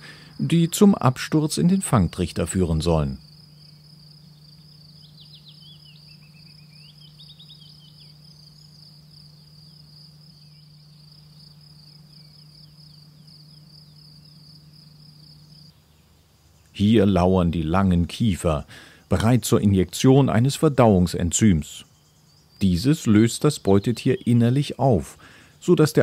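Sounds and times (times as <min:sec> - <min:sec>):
high-pitched insect trill: 0:00.0 - 0:16.8, 0:20.0 - 0:24.9
low steady hum: 0:00.0 - 0:26.0.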